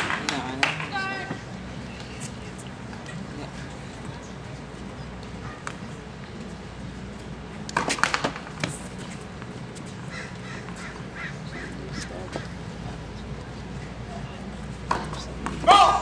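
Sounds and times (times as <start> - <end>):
crowd hum: 0.0 - 16.0
racket hitting ball: 7.7 - 9.1, 14.9 - 16.0.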